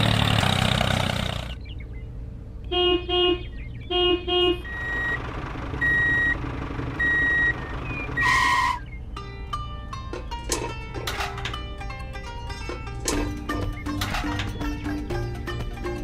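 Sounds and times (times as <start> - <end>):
truck engine running: 0.0 - 2.4, 3.4 - 16.0
horn toots: 2.6 - 5.2, 8.2 - 8.9
reversing beeps: 4.6 - 5.2, 5.8 - 6.4, 7.0 - 7.6.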